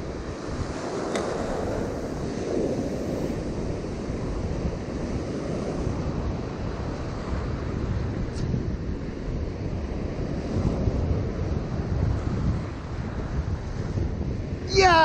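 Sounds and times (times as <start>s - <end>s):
surf washing over rocks: 0.0s - 8.2s
wind buffeting microphone: 0.0s - 15.0s.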